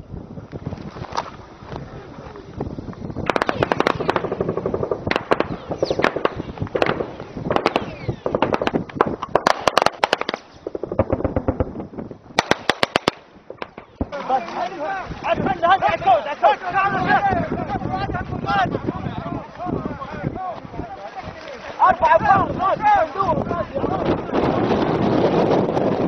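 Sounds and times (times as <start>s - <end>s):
automatic gunfire: 3.2s - 11.7s, 12.4s - 14.0s.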